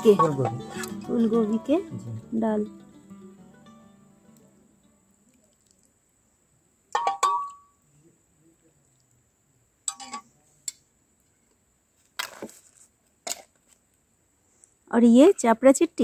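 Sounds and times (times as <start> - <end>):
metal utensils clinking on dishes: 9.9 - 10.2.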